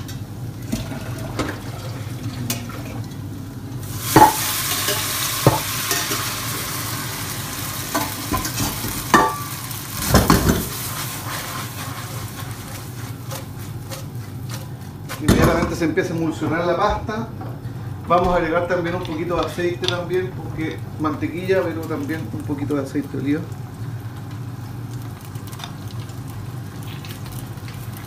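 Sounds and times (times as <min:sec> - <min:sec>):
pasta sizzling in butter: 0:03.2 - 0:16.3, 0:19.6 - 0:28.0.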